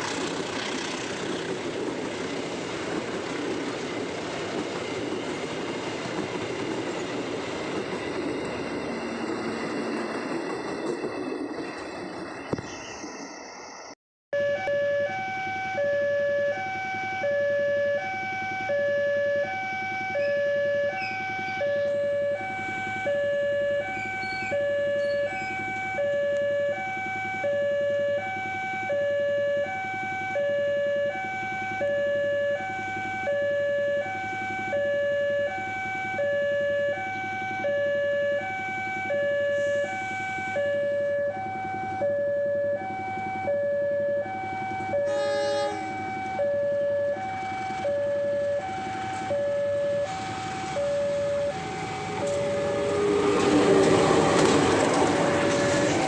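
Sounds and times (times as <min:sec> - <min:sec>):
level crossing alarm alternating tones: 0:14.4 - 0:53.4.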